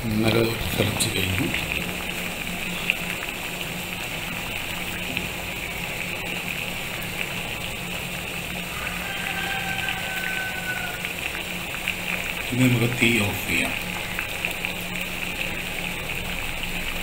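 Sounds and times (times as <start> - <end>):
low steady hum: 0.0 - 8.7
water boiling and bubbling: 0.0 - 17.0.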